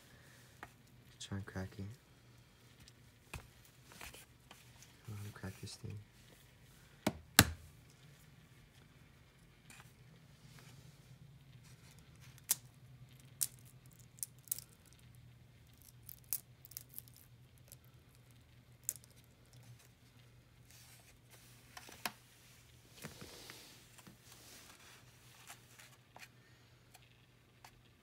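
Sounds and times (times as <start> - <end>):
low steady hum: 0.0 - 28.0
egg tapping and cracking: 12.4 - 19.6.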